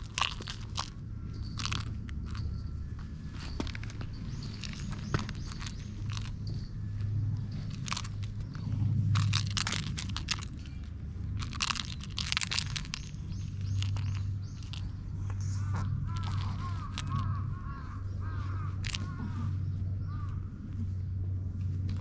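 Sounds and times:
cat biting crunchy toy: 0.0s - 2.6s, 3.4s - 6.6s, 7.4s - 15.3s, 16.0s - 17.4s, 18.8s - 19.1s.

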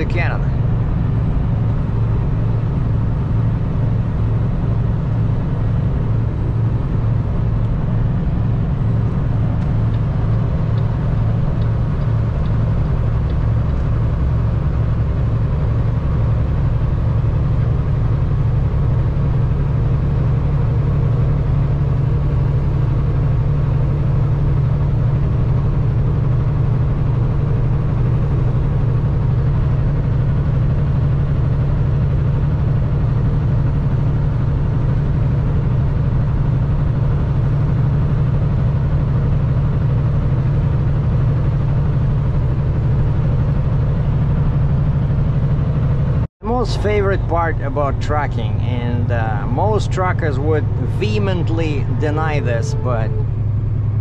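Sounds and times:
truck diesel engine drone: 0.0s - 54.0s
tyre and road noise: 33.4s - 54.0s.

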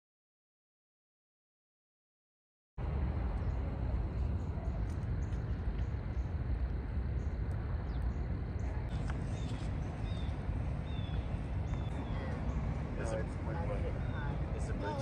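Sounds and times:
steady low rumble: 2.8s - 15.0s
bird chirps: 7.2s - 13.2s.

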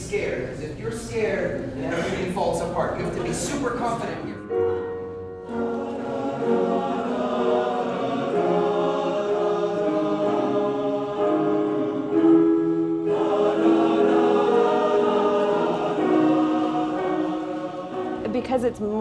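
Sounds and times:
men's chorus singing: 5.5s - 18.5s.

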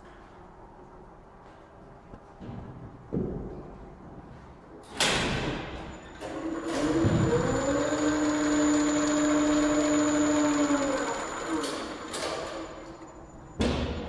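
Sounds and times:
elevator machine clack: 4.9s - 14.0s
faint high whine: 5.8s - 14.0s
elevator motor hum: 6.0s - 13.7s.

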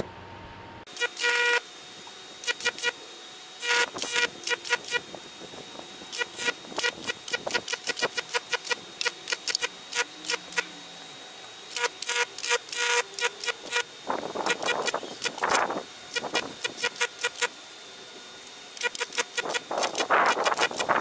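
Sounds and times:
electric arcs buzzing and crackling: 0.9s - 3.0s, 3.6s - 10.8s, 11.7s - 17.6s, 18.4s - 21.0s.

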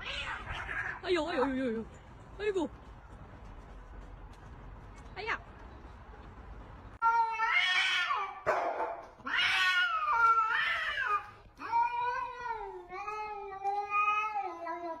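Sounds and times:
cats yowling: 0.0s - 1.0s, 7.0s - 8.5s, 9.2s - 15.0s.

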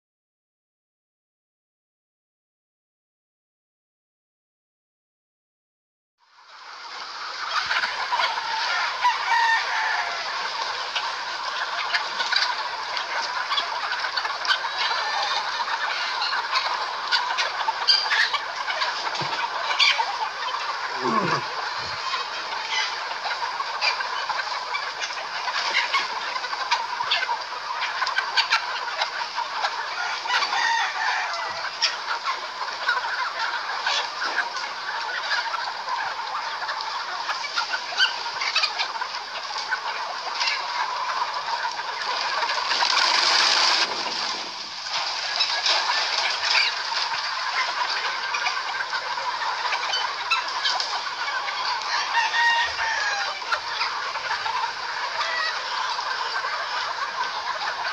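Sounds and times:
chickens clucking and calling: 6.3s - 57.9s
birds rustling: 18.8s - 23.0s, 41.9s - 48.6s.

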